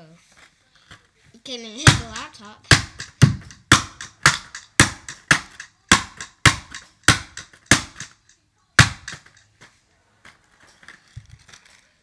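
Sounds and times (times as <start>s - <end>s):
cardboard box being struck: 1.9s - 8.2s, 8.8s - 9.4s.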